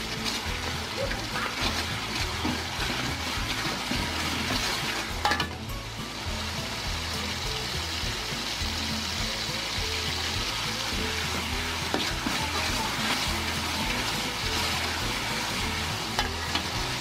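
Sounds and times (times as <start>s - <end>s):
metal spoon scraping wok: 0.0s - 5.6s, 11.0s - 17.0s
spice paste sizzling in oil: 0.0s - 17.0s.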